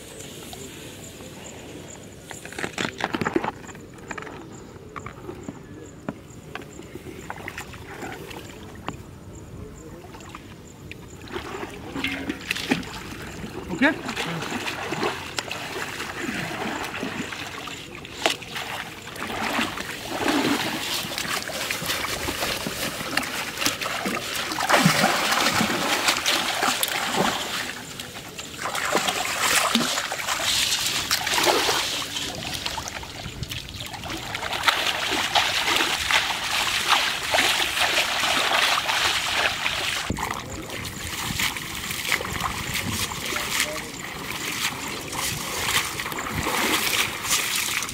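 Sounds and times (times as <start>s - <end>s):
shallow water splashing and trickling: 10.1s - 47.9s.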